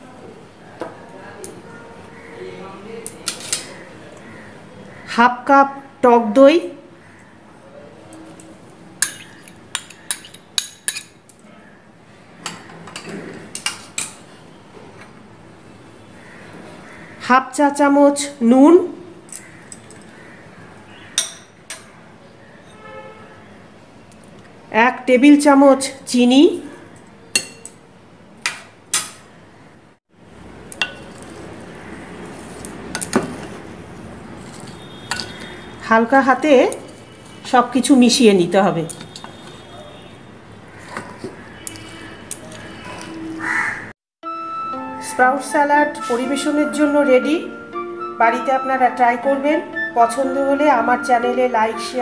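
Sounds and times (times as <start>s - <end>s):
metal spoon clinking on glass bowl: 9.0s - 11.2s.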